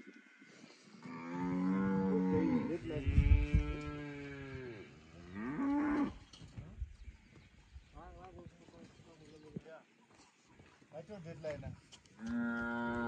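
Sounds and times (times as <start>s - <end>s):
cattle mooing: 1.0s - 6.2s, 12.2s - 13.0s.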